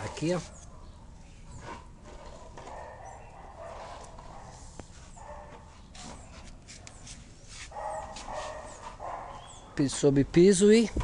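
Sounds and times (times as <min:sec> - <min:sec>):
dog barking: 0:02.2 - 0:04.6, 0:05.2 - 0:05.7, 0:07.7 - 0:09.9.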